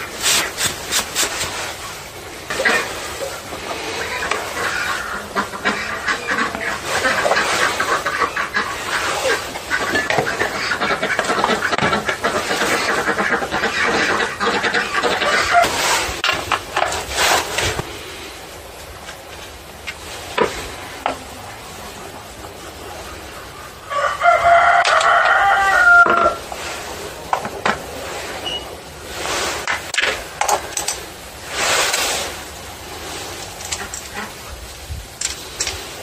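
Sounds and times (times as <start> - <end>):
rooster crowing: 23.9 - 26.4
clicks and rustles of handling: 33.3 - 34.2, 35.2 - 35.9.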